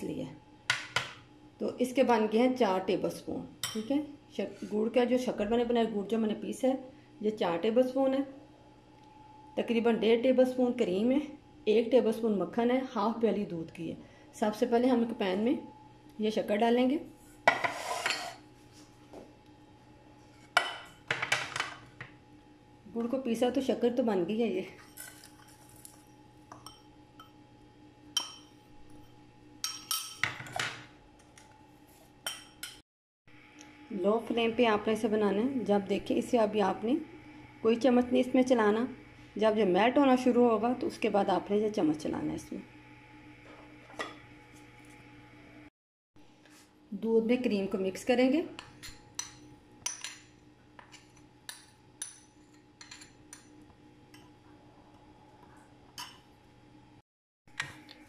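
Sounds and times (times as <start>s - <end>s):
spoon scraping enamel bowl: 17.4s - 18.4s
spoon clinking on ceramic bowl: 26.5s - 27.4s, 28.2s - 28.6s, 48.8s - 53.5s.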